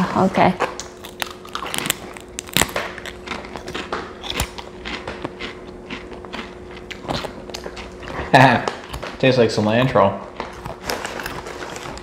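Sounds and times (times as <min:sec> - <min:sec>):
faint steady hum: 0:00.0 - 0:12.0
potato chips crunching: 0:00.7 - 0:12.0.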